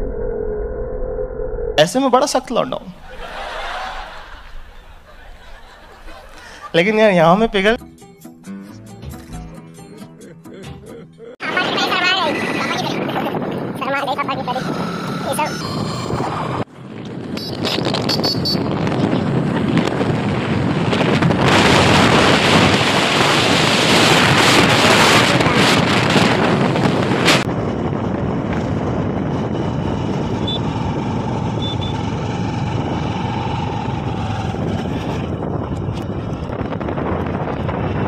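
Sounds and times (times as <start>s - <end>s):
wind rushing over microphone: 2.9s - 7.8s, 11.4s - 38.0s
motorcycle engine running: 27.5s - 38.0s.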